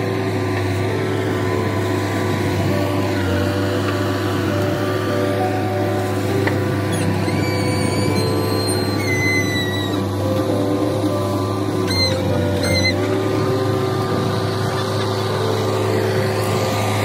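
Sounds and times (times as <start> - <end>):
diesel engine under load: 0.0 - 17.0
high whistling tones: 6.9 - 10.1.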